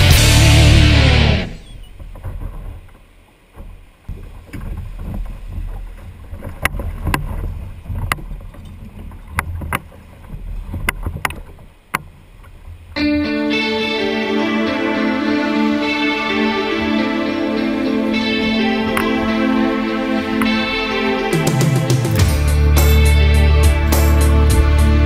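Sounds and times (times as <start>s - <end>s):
music: 0.0s - 1.6s, 13.0s - 25.0s
wind rumbling: 0.0s - 25.0s
surf washing around kayak: 1.8s - 25.0s.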